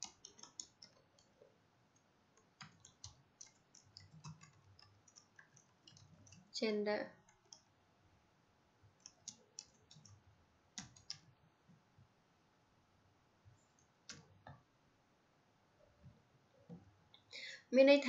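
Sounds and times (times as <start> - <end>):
keyboard typing clicks: 0.0 - 1.4, 2.4 - 6.5, 7.2 - 7.7, 9.0 - 10.2, 10.8 - 11.3.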